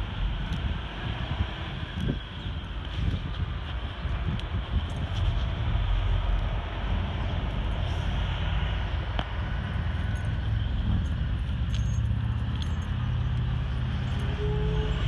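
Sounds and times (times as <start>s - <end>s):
highway traffic rumble: 0.0s - 15.0s
light clinks: 10.0s - 14.4s.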